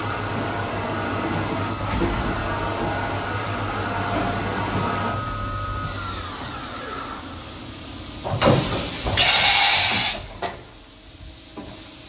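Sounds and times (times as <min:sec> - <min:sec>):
servo whine: 0:00.0 - 0:07.8
machine hum: 0:00.0 - 0:08.3.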